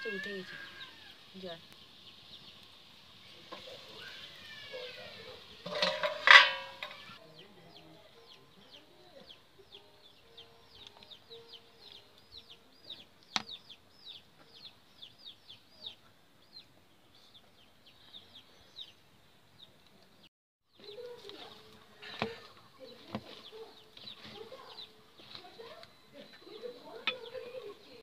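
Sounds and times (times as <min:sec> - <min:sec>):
high bird chirps: 0:23.5 - 0:28.0.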